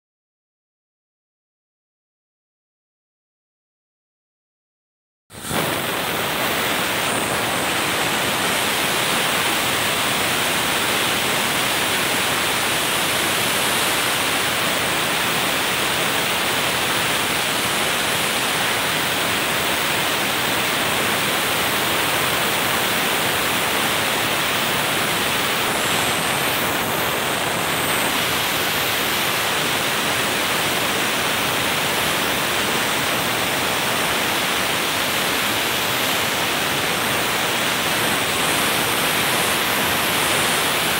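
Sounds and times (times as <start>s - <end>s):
sandblaster hissing: 5.4s - 40.9s.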